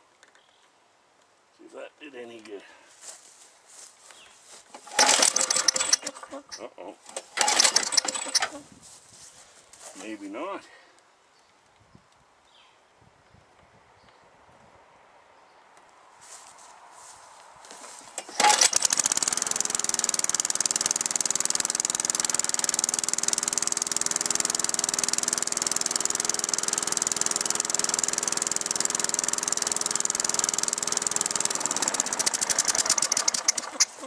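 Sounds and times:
lawn mower engine running: 0:04.7 - 0:08.6, 0:17.8 - 0:34.0
lawn mower pull start: 0:04.7 - 0:08.6, 0:17.8 - 0:34.0.

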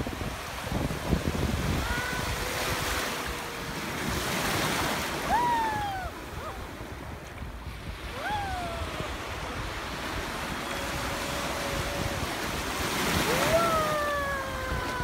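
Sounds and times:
small waves breaking: 0:00.0 - 0:15.0
wind on microphone: 0:00.0 - 0:15.0
high drawn-out cries: 0:10.2 - 0:15.0.

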